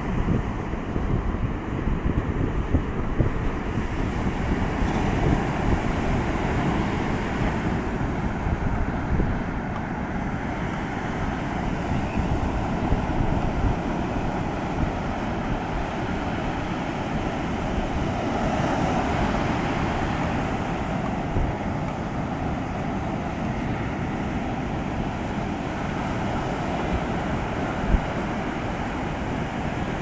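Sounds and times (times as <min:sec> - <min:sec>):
ocean surf breaking on beach: 0:00.0 - 0:30.0
wind buffeting microphone: 0:00.0 - 0:30.0.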